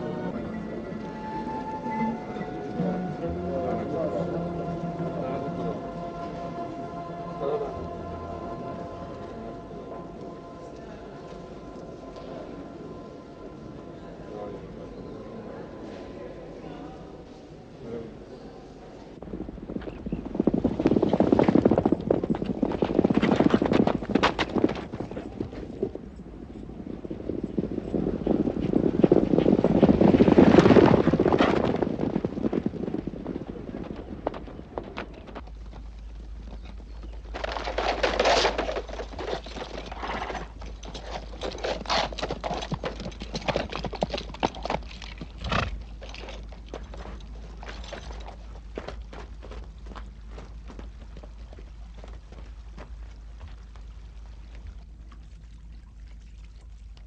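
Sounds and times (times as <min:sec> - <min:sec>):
horses galloping on sand: 0:19.2 - 0:57.0.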